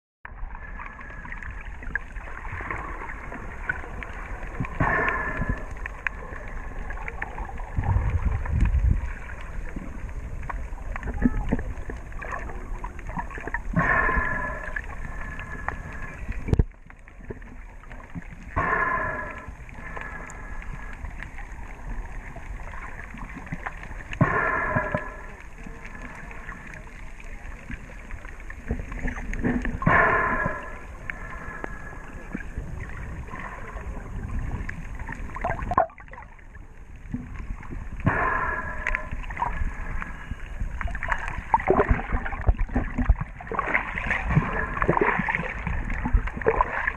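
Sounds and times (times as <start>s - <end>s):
muffled water sloshing: 0.3s - 46.9s
breathing through a snorkel: 4.7s - 6.5s, 13.7s - 16.6s, 18.5s - 21.2s, 24.2s - 26.8s, 29.4s - 32.6s, 38.0s - 40.6s.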